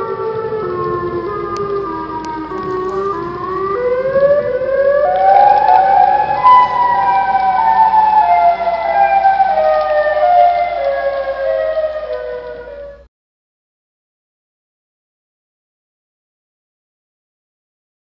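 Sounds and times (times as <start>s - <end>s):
wailing siren-like tones: 0.0s - 13.1s.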